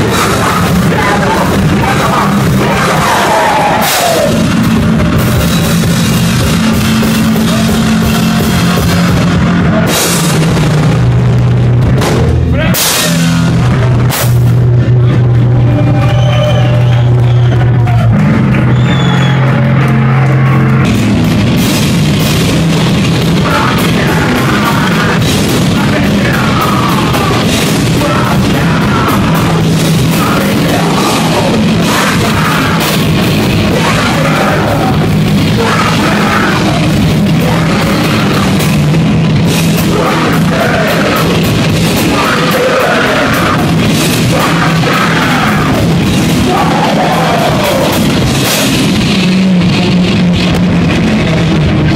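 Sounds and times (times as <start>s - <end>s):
person yelling vocals: 0.0s - 4.5s, 23.4s - 38.7s, 39.7s - 48.8s
heavy metal band playing: 0.0s - 51.9s.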